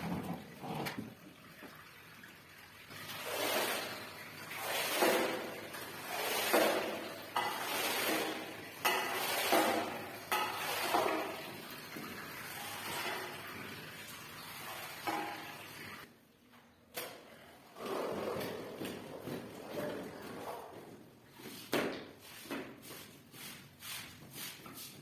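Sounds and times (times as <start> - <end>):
squeegee wet swishing strokes: 3.0 - 11.6, 21.4 - 25.0.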